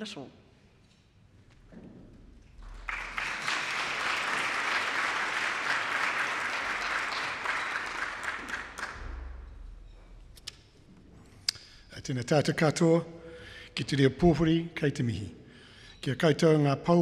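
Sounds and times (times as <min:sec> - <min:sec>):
audience applauding: 0:02.6 - 0:09.5.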